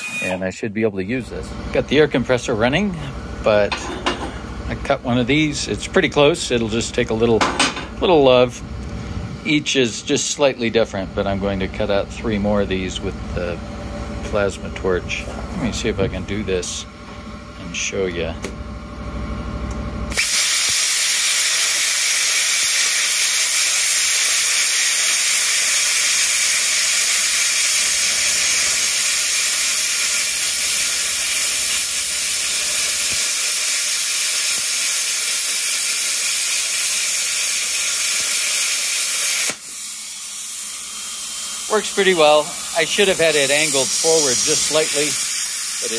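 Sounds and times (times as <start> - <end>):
plasma cutter hissing: 20.1 - 45.9.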